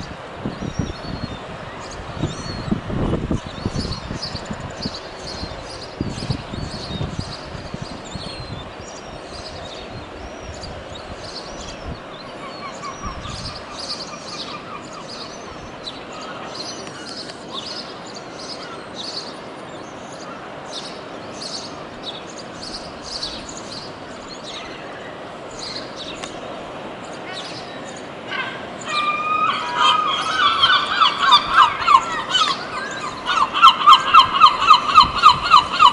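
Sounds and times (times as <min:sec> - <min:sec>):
steady background noise: 0:00.0 - 0:35.9
gull chicks peeping: 0:28.3 - 0:35.9.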